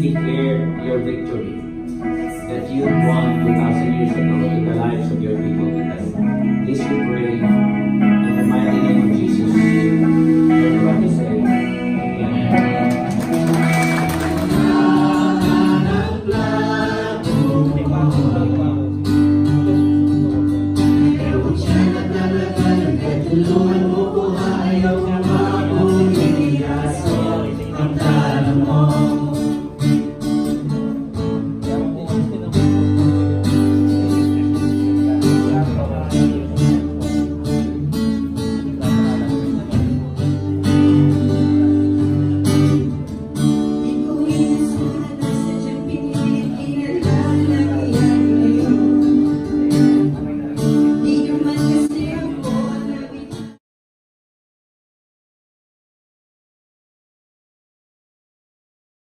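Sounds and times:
strummed acoustic guitar: 0.0s - 53.6s
group singing worship song: 8.9s - 18.6s, 20.8s - 30.0s, 43.8s - 49.6s.

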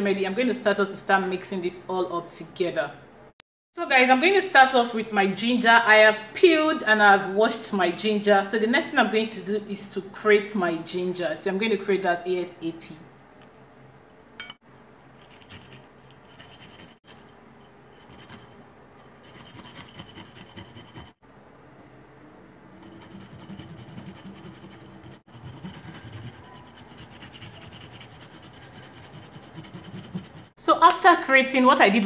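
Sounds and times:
ginger grating on metal grater: 18.0s - 21.2s, 22.8s - 30.5s.

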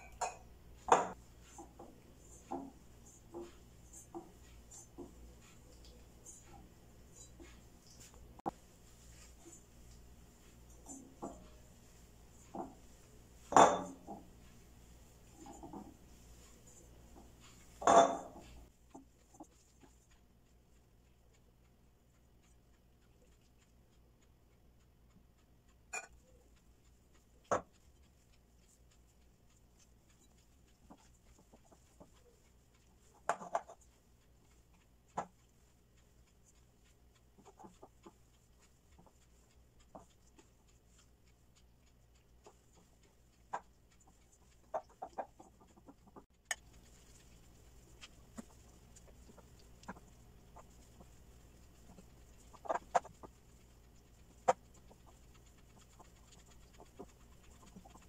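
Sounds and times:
low steady hum: 0.0s - 58.0s
chicken clucking: 41.6s - 46.2s, 48.4s - 58.0s.

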